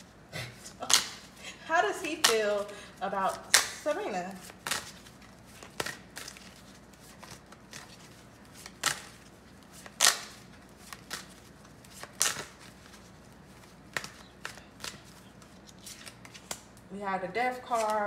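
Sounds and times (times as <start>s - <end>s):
cards shuffled on countertop: 2.1s - 16.8s, 17.5s - 18.0s.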